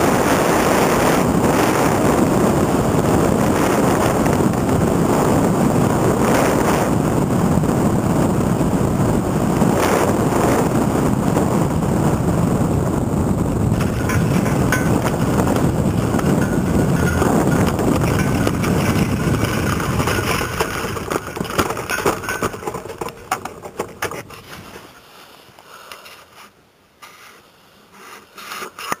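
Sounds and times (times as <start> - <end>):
wind on microphone: 0.0 - 24.9
small engine and propeller: 13.7 - 24.5.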